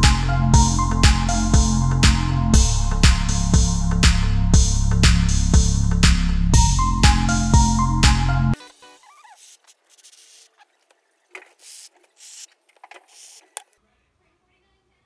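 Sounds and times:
electronic background music: 0.0s - 9.2s.

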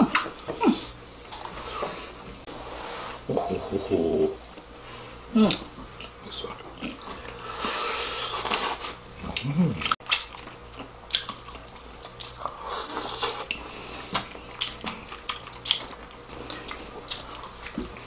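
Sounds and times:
wet chewing and lip-smacking: 8.4s - 18.0s.

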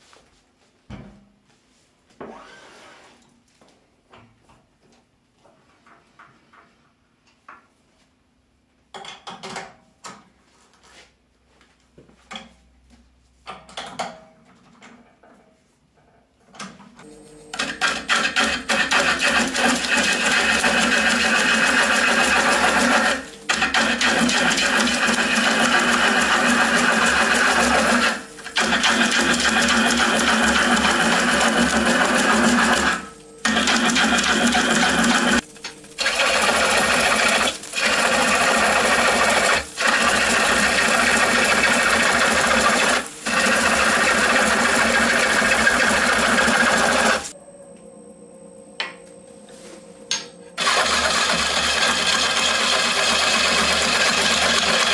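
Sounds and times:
gouge shearing wood on lathe: 17.6s - 47.3s, 50.6s - 54.9s
lathe humming: 17.6s - 47.3s, 50.6s - 54.9s.

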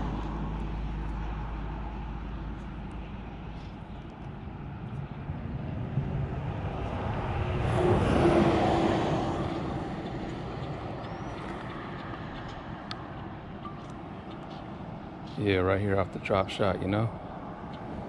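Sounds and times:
vehicle driving past: 5.3s - 13.3s.

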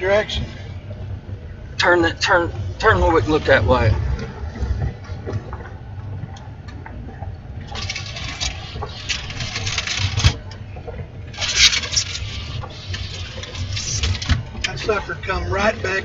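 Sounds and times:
vehicle rumble: 0.0s - 16.0s
noisy hiss: 11.2s - 16.0s.

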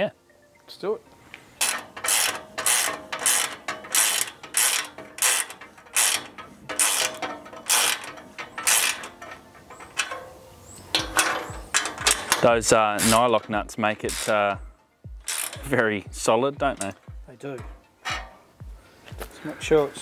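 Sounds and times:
ratchet wrench clicking: 1.6s - 10.2s, 10.9s - 12.4s, 14.1s - 14.6s, 15.2s - 15.7s.

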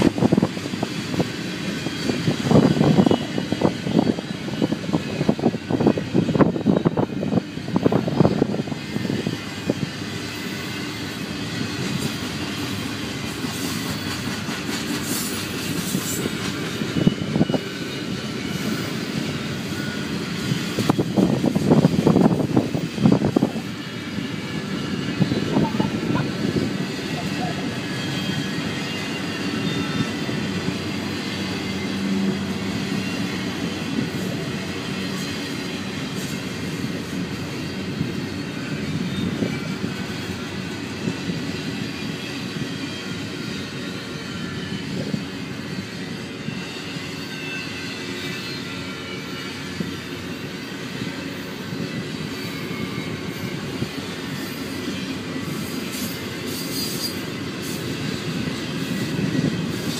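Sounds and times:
steel wheels rolling on rails: 0.0s - 59.9s
faint wheel squeal: 15.0s - 21.1s, 23.5s - 33.7s, 37.7s - 59.9s.

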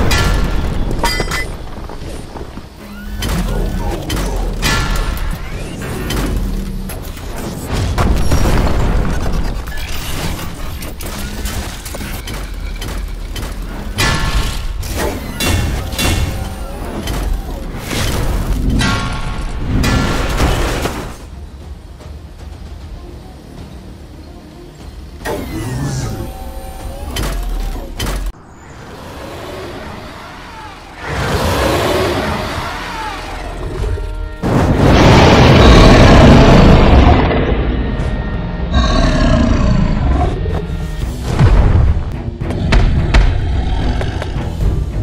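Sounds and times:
background music: 10.5s - 28.4s, 37.6s - 45.0s
robot mechanical whirring: 25.2s - 34.2s.

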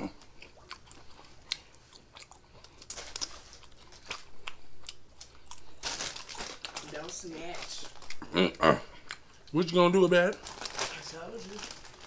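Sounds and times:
chips crunching: 2.6s - 8.3s.

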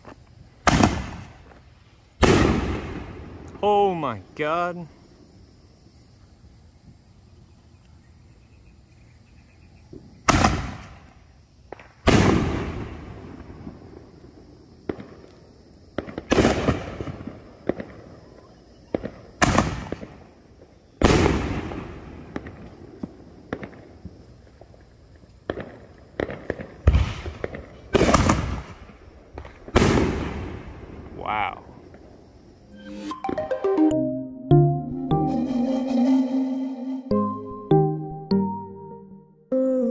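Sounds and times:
fireworks booms echoing: 0.6s - 1.5s, 2.2s - 4.0s, 10.2s - 11.1s, 11.7s - 15.3s, 15.9s - 18.2s, 18.9s - 20.3s, 21.0s - 24.2s, 25.4s - 32.2s.

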